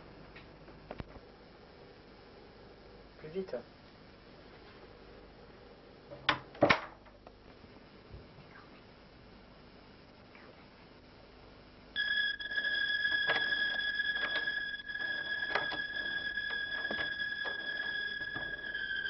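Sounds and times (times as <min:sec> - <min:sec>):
high-pitched electronic alarm tone: 0:12.0 - 0:19.0.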